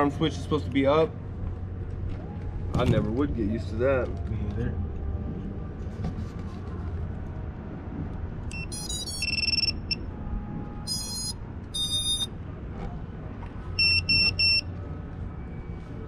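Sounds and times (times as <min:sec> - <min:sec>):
drone motor startup beeps: 0:08.5 - 0:10.0, 0:10.9 - 0:12.3, 0:13.8 - 0:14.7
short identical beeps: 0:08.5 - 0:10.0, 0:10.9 - 0:12.3, 0:13.8 - 0:14.7.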